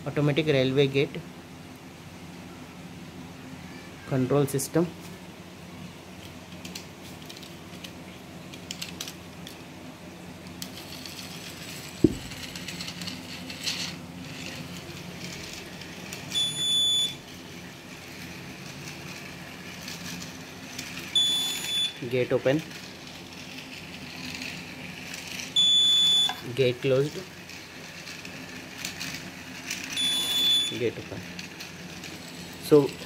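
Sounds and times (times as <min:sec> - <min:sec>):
high steady buzzer beep: 0:16.4 - 0:17.2, 0:21.2 - 0:22.0, 0:25.6 - 0:26.4, 0:30.0 - 0:30.8.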